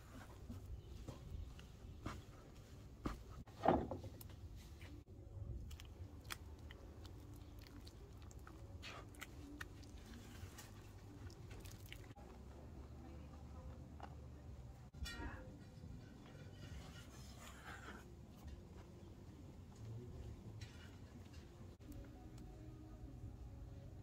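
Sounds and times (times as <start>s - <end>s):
spatula squishing sticky dough: 5.5s - 12.2s.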